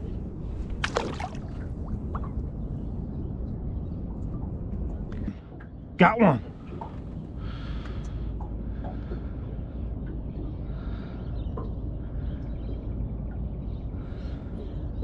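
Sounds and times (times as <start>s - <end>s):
wind rumbling on microphone: 0.0s - 15.0s
distant bird calls: 5.2s - 15.0s.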